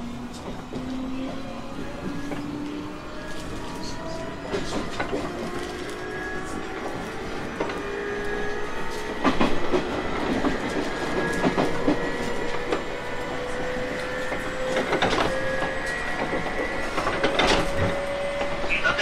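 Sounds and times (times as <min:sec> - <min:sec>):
electric train hum rising in pitch: 0:00.0 - 0:19.0.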